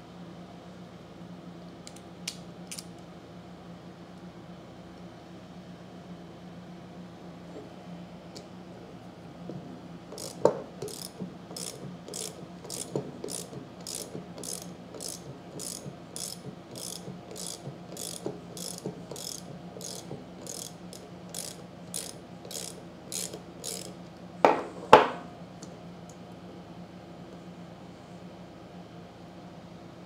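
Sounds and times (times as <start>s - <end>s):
socket ratchet clicking: 1.9s - 2.9s, 10.1s - 24.0s.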